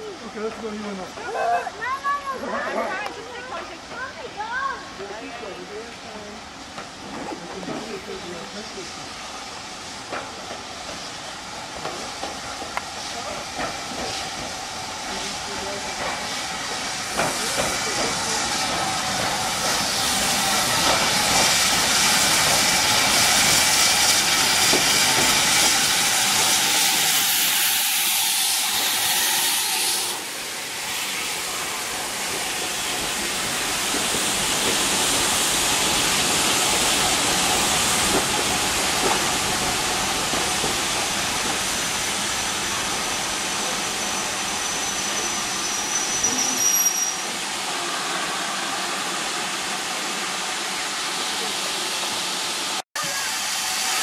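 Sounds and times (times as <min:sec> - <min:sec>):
steam locomotive hissing: 0:00.0 - 0:54.0.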